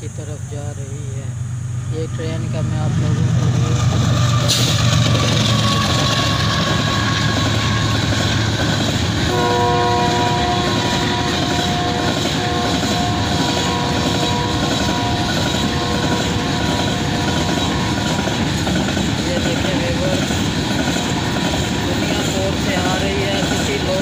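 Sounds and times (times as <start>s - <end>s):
freight train wheels rumbling: 0.0s - 24.0s
chord of high horn tones: 9.3s - 18.2s.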